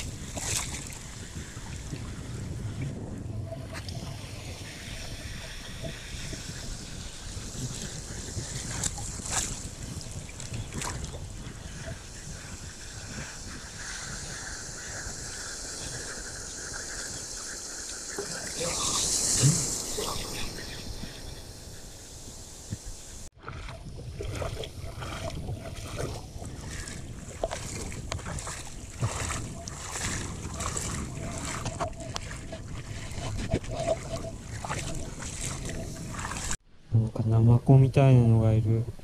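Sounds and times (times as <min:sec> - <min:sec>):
feet wading through water: 0:00.0 - 0:02.2, 0:03.7 - 0:16.0, 0:23.3 - 0:36.6
small waves washing over reef: 0:00.0 - 0:36.6.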